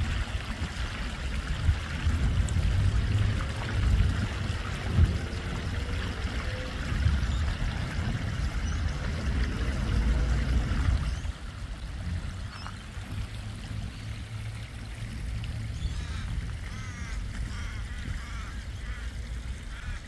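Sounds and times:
water spilling over rocks: 0:00.0 - 0:20.0
ducks quacking: 0:15.9 - 0:20.0.

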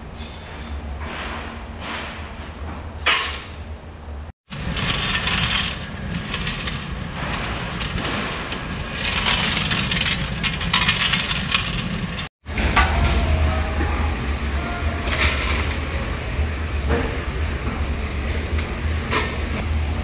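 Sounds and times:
steel bolts clinking and rattling: 0:04.6 - 0:12.9
electric blower hum: 0:12.4 - 0:20.0.

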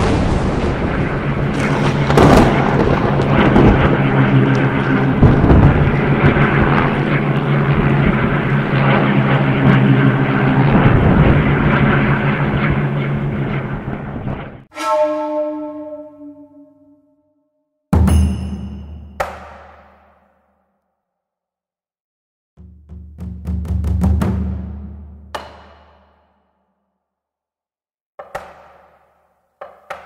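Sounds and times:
propeller aircraft engines droning: 0:00.8 - 0:14.7.

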